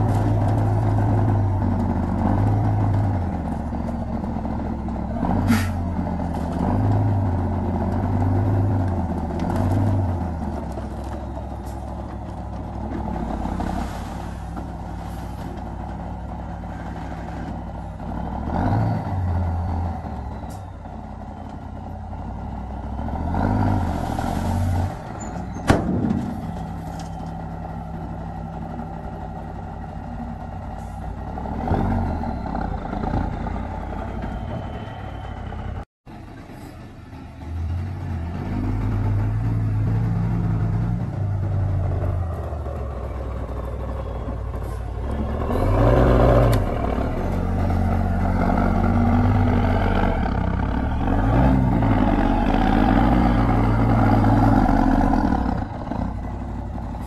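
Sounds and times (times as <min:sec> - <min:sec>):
diesel engine running under load: 0:00.0 - 0:57.0.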